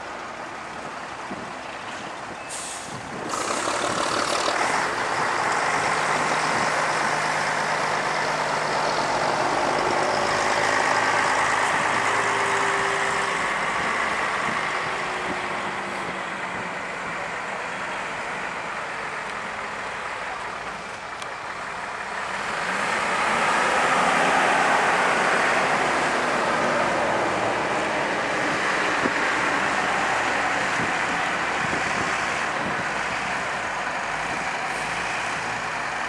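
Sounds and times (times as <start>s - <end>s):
buses driving past: 0.0s - 36.0s.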